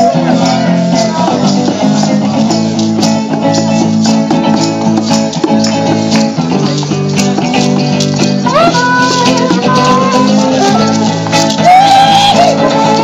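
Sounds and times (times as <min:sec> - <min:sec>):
acoustic guitars strumming: 0:00.0 - 0:13.0
hand shakers and rattles: 0:00.0 - 0:13.0.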